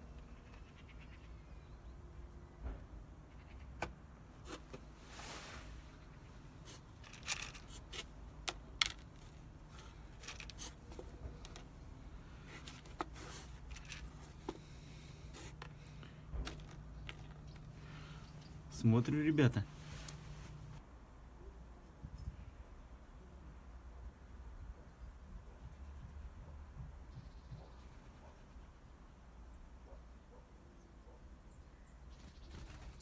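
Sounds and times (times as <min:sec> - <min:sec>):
thin plastic crackling and scraping: 0:06.6 - 0:11.8, 0:12.4 - 0:14.6.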